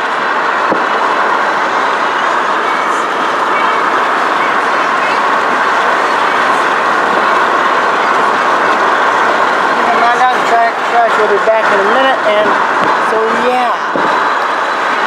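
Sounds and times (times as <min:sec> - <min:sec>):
road noise: 0:00.0 - 0:15.0
wind rushing through car window: 0:00.0 - 0:15.0.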